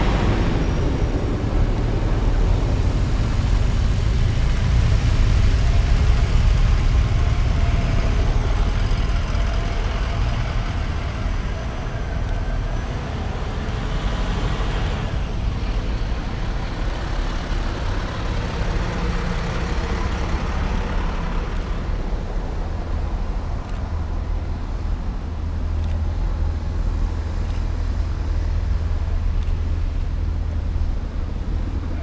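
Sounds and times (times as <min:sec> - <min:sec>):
fire engine driving past: 0:00.0 - 0:24.6
vehicles rolling by: 0:00.0 - 0:32.0.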